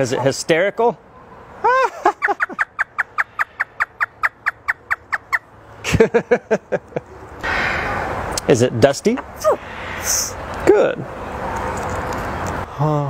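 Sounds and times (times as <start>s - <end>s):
parrot imitating laughter: 1.6s - 5.4s.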